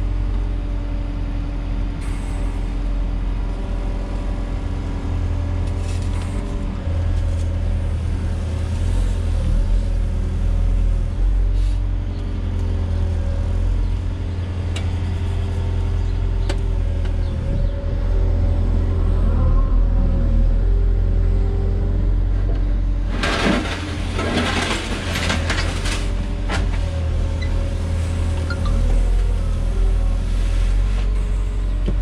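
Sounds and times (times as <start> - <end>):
diesel engine rumbling: 0.0 - 32.0.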